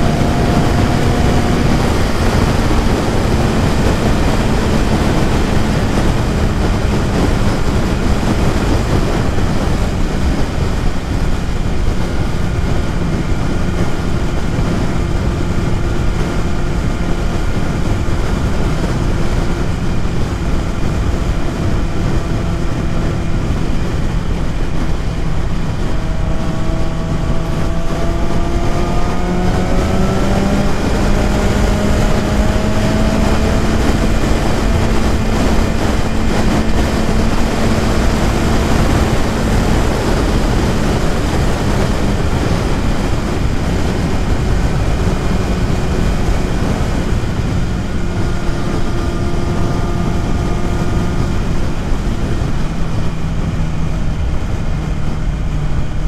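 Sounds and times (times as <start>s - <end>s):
motorcycle engine running: 0.0s - 56.0s
wind rush: 0.0s - 56.0s.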